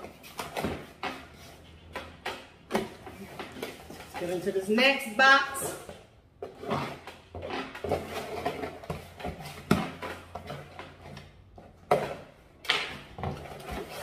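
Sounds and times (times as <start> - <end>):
cardboard scraping and rustling: 6.4 - 12.3, 13.0 - 14.0.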